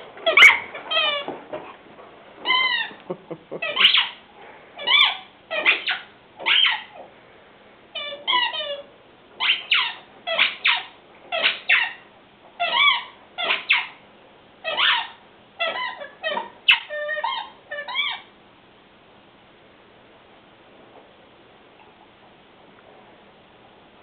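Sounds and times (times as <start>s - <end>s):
squeaky dog toy squeaking: 0.2s - 1.3s, 2.4s - 3.0s, 3.6s - 4.2s, 4.8s - 7.0s, 7.9s - 12.0s, 12.6s - 14.0s, 14.6s - 18.3s.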